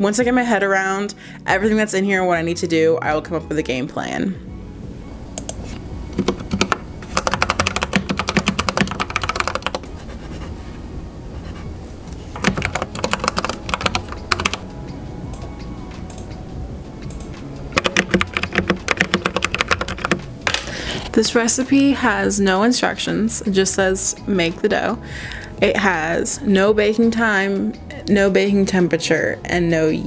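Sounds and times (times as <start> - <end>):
keyboard key clicks: 6.2 - 9.8, 17.1 - 20.7.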